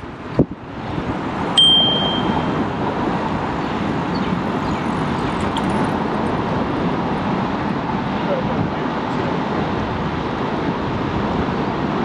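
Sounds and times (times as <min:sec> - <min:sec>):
road and traffic noise: 0:00.0 - 0:12.0
high ding: 0:01.6 - 0:02.6.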